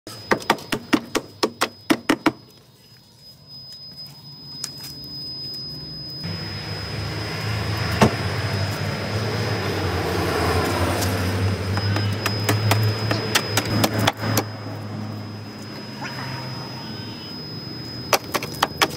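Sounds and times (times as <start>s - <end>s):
low rumbling noise: 6.3s - 18.1s.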